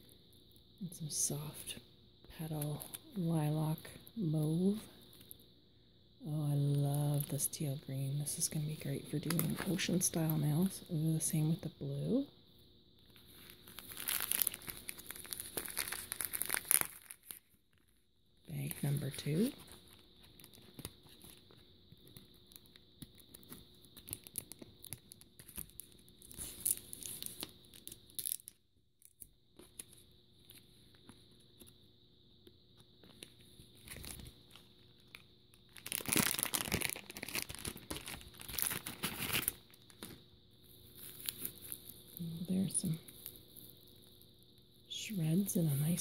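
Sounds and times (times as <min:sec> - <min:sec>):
plastic packaging crinkling: 0:13.1 - 0:29.9, 0:33.0 - 0:40.2, 0:40.8 - 0:44.1.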